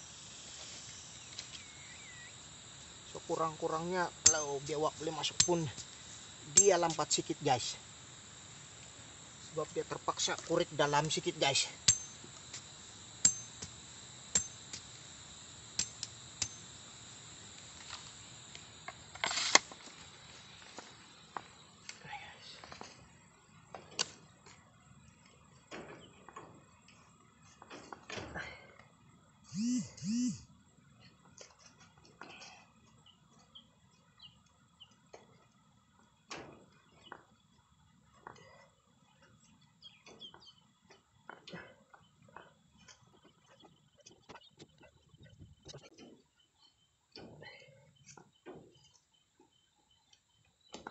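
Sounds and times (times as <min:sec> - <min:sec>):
bamboo stakes clicking and rustling: 0:17.6 - 0:20.8, 0:23.8 - 0:24.6
small birds chirping: 0:38.9 - 0:41.0.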